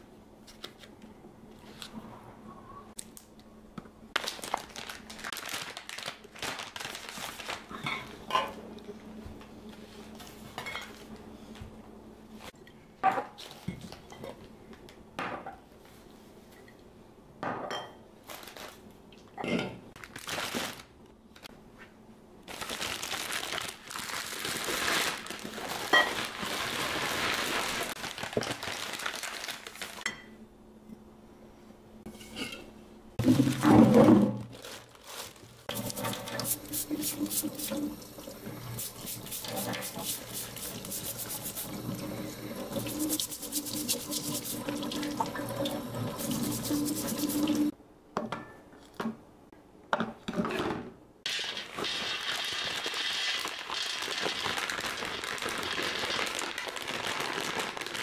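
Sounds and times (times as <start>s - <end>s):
rapid rubbing strokes: 35.7s - 37.9s, 38.8s - 41.8s, 42.8s - 44.8s, 46.2s - 47.7s.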